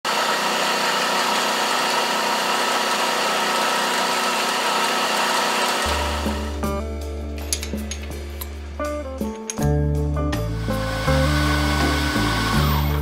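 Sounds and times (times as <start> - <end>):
milling machine cutting metal: 0.1 - 6.6, 10.5 - 13.0
music: 5.9 - 13.0.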